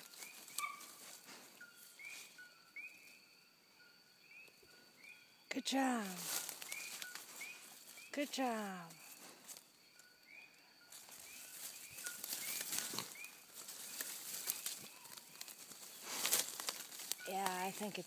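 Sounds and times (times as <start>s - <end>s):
dry leaves rustling and crackling: 0.0s - 1.5s, 6.0s - 8.1s, 10.9s - 18.0s
bird chirping faintly: 0.0s - 16.1s.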